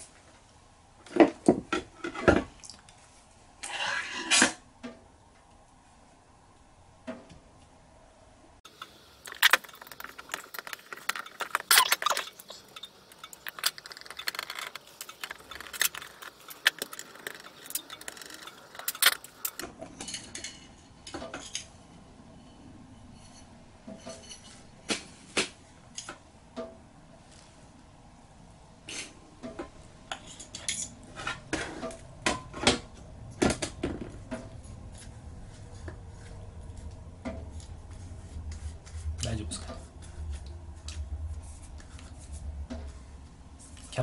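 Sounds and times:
small metal parts clinking: 8.7 - 20.7.

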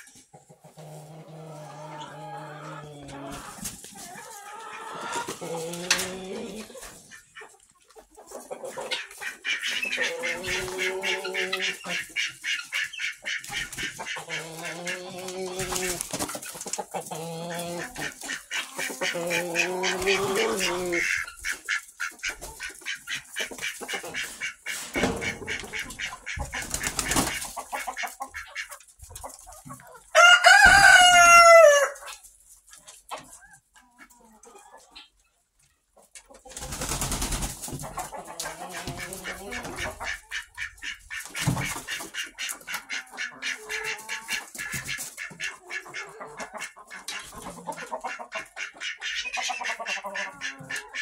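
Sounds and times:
chickens clucking: 0.0 - 51.0
rooster crowing: 30.2 - 32.0.

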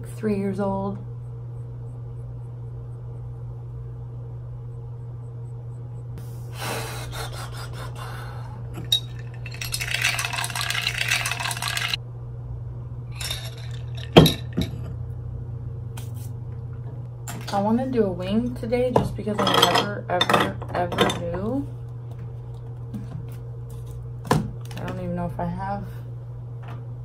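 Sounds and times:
metal straw clinking against glass: 8.8 - 12.0.

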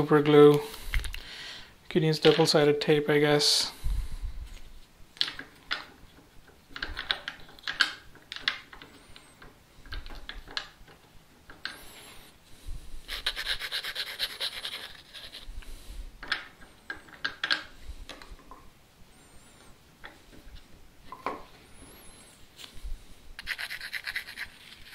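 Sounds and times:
rough rubbing: 23.4 - 24.9.

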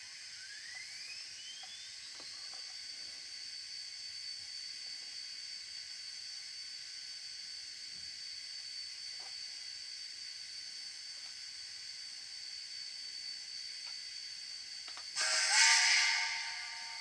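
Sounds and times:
high-pitched whine: 15.0 - 17.0
steam hiss: 15.2 - 17.0.

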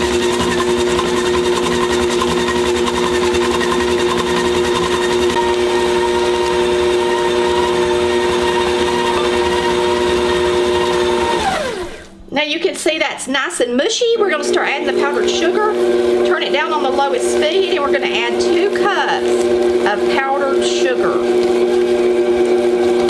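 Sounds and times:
beater churning thick mixture: 0.0 - 12.1, 14.0 - 23.0
stand mixer motor whine: 0.0 - 12.2, 14.2 - 23.0.

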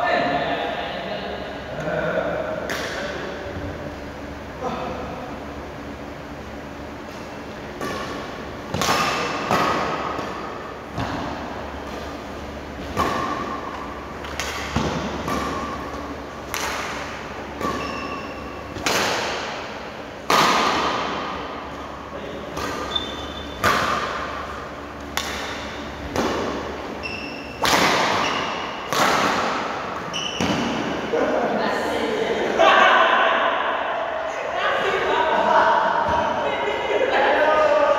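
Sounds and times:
rackets hitting shuttlecock: 7.1 - 31.1
shoes squeaking on court: 17.5 - 18.8, 22.5 - 23.8, 26.9 - 28.9, 30.0 - 30.8.

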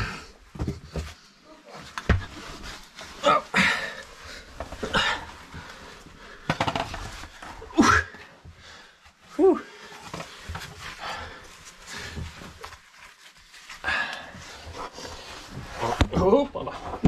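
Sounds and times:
person breathing hard and grunting: 3.2 - 6.6.

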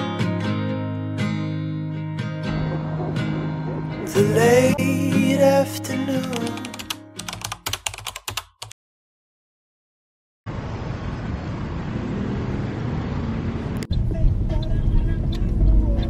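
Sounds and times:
background music: 0.0 - 7.6
outdoor ambience rushing: 2.2 - 6.4, 10.5 - 16.0
sharp clicks: 6.1 - 8.7.

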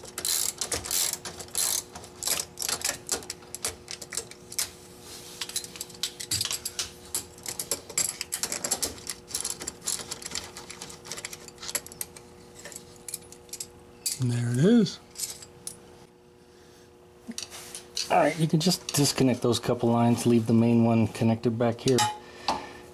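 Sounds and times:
socket ratchet clicking: 0.2 - 4.3.

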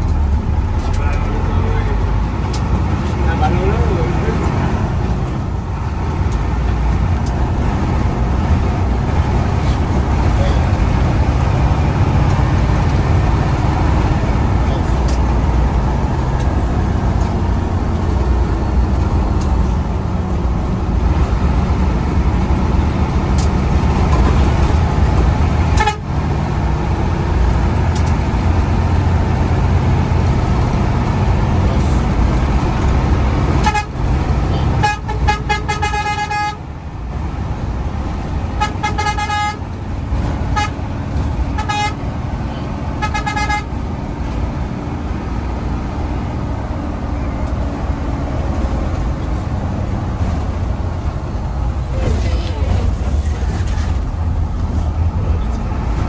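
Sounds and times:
bus engine and road noise: 0.0 - 56.0
horn blasts: 25.7 - 26.1, 33.6 - 34.0, 34.8 - 36.6, 38.6 - 39.6, 40.5 - 40.8, 41.5 - 42.0, 43.0 - 43.8.

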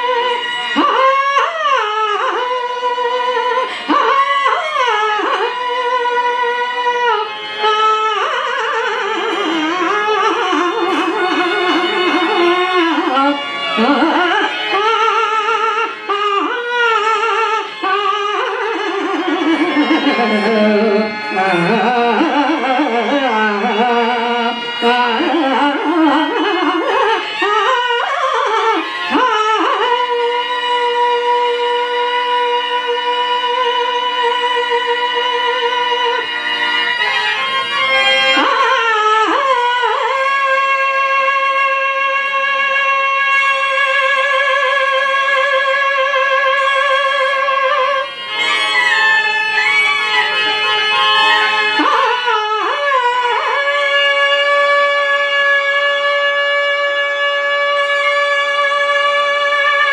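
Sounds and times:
instrumental accompaniment: 0.0 - 59.9
person singing ornamented melody: 19.2 - 27.0.

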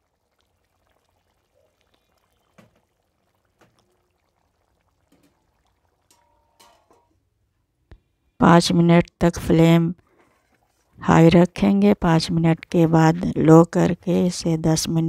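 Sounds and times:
curry simmering pops: 0.0 - 8.1, 10.0 - 11.0.

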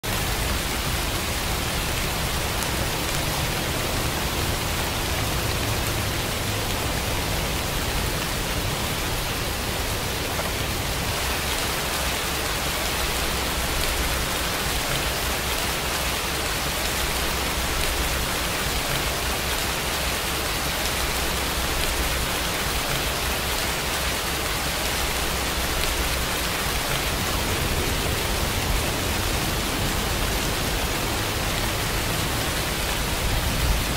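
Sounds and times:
rain falling: 0.0 - 33.9.

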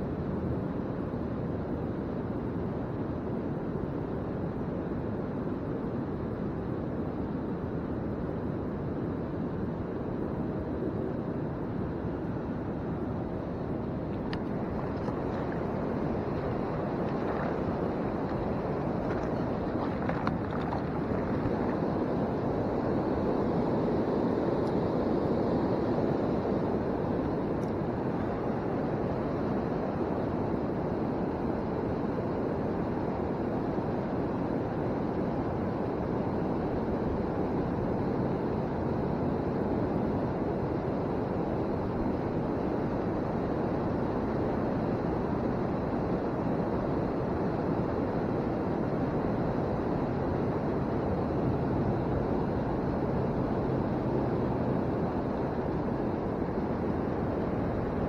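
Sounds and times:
faint low hum: 0.0 - 58.0
river water rushing: 13.2 - 29.6.

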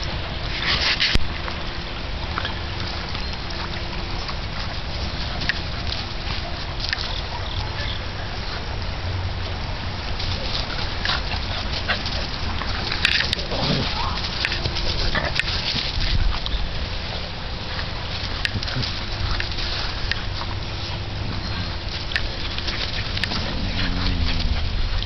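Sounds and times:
dogs growling and yapping: 9.9 - 25.0.

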